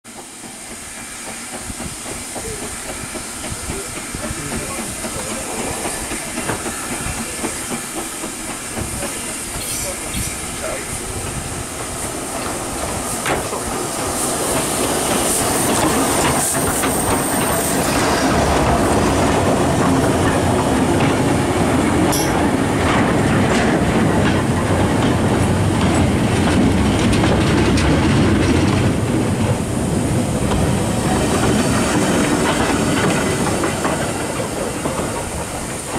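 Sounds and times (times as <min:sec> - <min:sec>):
steam hissing: 0:00.1 - 0:35.9
steam locomotive passing: 0:00.1 - 0:35.9
wheels clattering over rail joints: 0:14.5 - 0:35.9.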